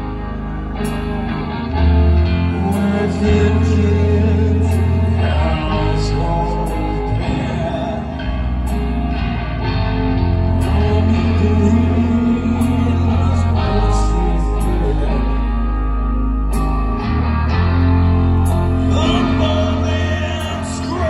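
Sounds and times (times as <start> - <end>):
live rock band playing: 0.0 - 21.0
man singing: 2.4 - 8.9, 10.4 - 16.0, 18.8 - 21.0.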